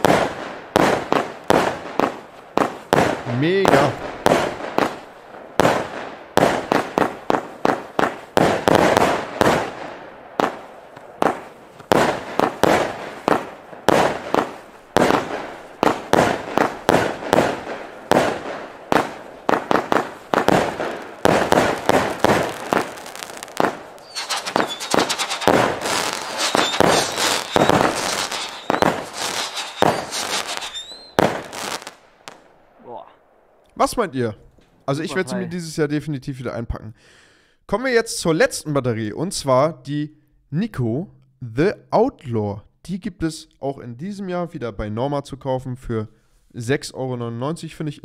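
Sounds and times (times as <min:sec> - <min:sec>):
firework bangs and crackle: 0:00.0 - 0:32.6.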